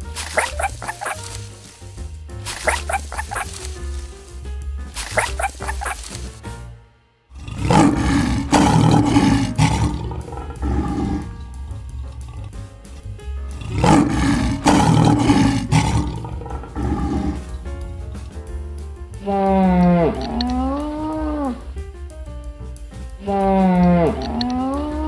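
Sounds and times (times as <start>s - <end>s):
background music: 0.0s - 25.0s
lion roaring: 7.3s - 12.6s, 13.5s - 17.7s, 19.2s - 21.6s, 23.3s - 25.0s.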